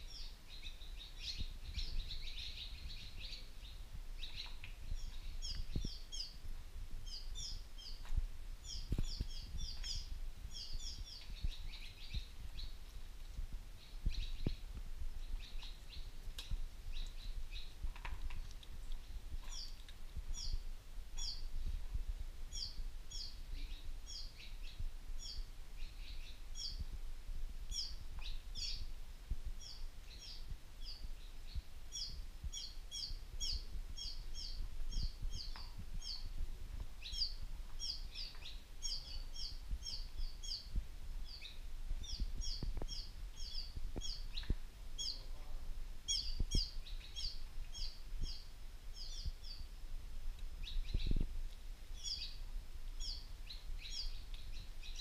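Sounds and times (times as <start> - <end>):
high chirping calls: 7.0 - 12.9, 29.6 - 36.4, 37.0 - 45.3, 46.1 - 49.7.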